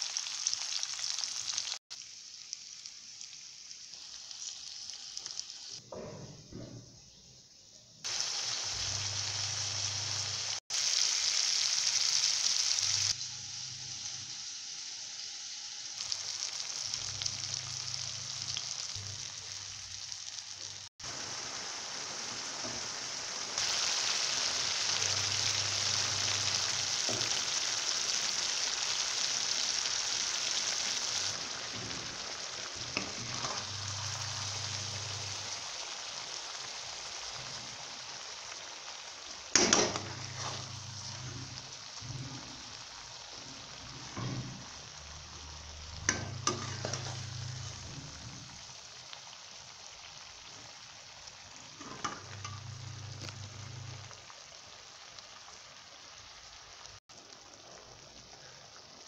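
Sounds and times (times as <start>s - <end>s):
food sizzling in hot oil: 0.0s - 5.9s, 8.0s - 59.0s
spatula scraping a pan: 31.6s - 34.7s, 39.6s - 42.6s, 46.1s - 48.4s.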